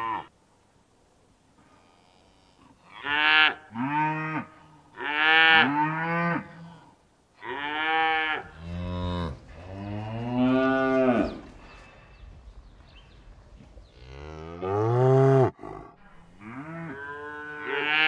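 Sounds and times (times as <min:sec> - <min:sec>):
cattle mooing: 0:14.0 - 0:18.0.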